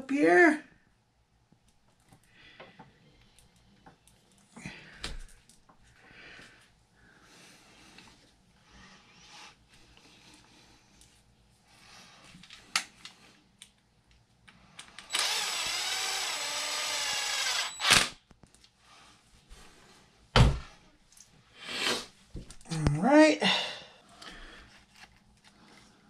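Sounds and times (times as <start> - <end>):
electric screwdriver running: 15.1 - 18.2.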